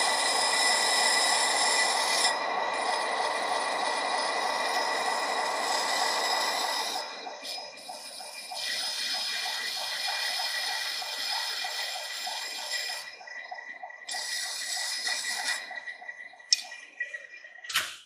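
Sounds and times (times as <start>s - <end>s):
lathe whine: 0.0s - 17.4s.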